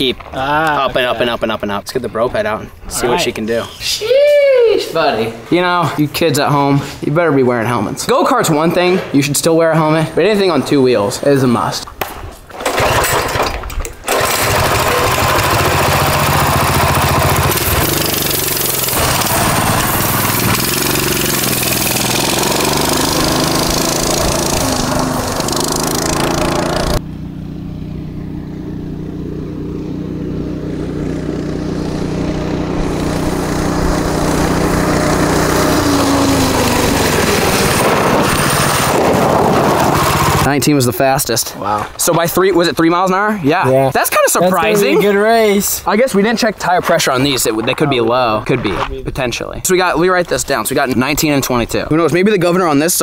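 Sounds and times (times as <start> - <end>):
recoil cord pull-start: 12.6 - 20.9
small engine running at high revs: 14.1 - 40.5.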